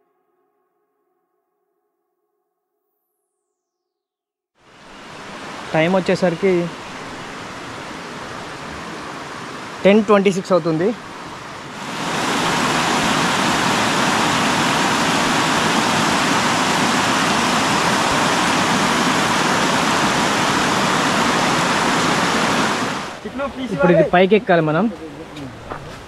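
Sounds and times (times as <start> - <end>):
waterfall rushing: 4.7 - 24.2.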